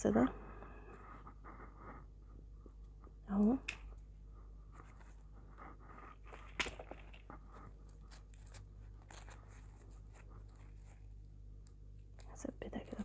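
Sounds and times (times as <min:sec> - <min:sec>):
faint crinkling and rustling: 0:04.6 - 0:13.0.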